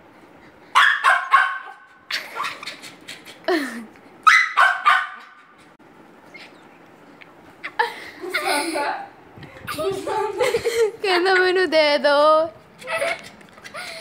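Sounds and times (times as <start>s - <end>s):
puppy barking: 0.8s - 2.6s, 4.2s - 5.5s.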